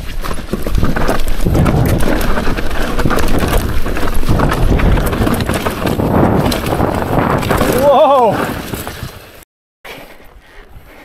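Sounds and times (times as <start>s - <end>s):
bike clattering over rough ground: 0.0s - 9.4s
bike tyres crunching over dirt: 0.0s - 11.0s.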